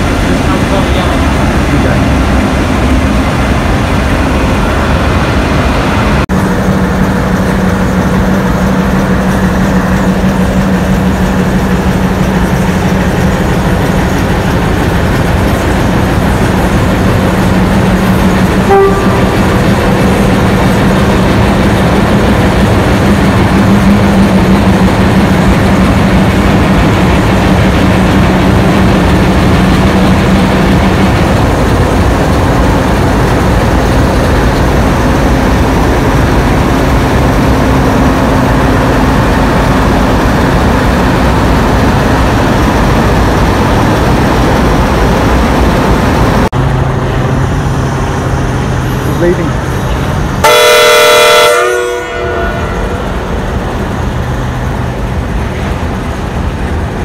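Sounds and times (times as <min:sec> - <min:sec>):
diesel locomotive engines humming: 0:00.0 - 0:57.0.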